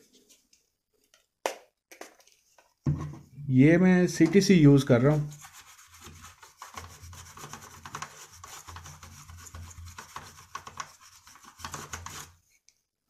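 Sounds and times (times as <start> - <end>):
brush scrubbing circuit board: 5.1 - 12.4.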